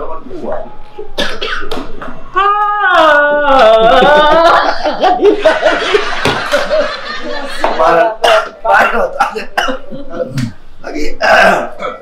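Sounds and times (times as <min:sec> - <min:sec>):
men laughing loudly: 0:03.5 - 0:10.3.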